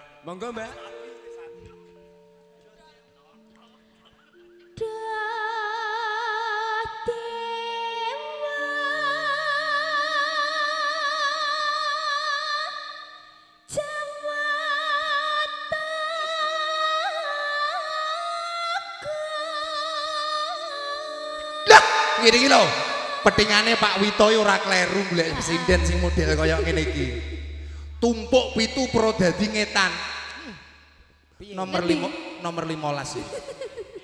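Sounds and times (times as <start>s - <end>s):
woman singing slow melody: 4.7s - 12.8s
sustained keyboard notes: 25.3s - 30.6s.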